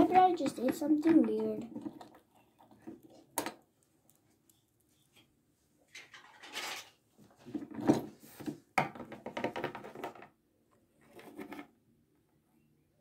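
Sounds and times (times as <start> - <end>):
small objects rustling and clattering: 0.0 - 10.4.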